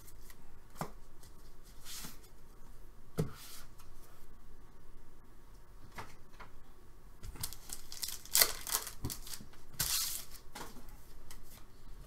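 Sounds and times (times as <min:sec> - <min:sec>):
foil wrapper tearing and crinkling: 0:07.4 - 0:10.4.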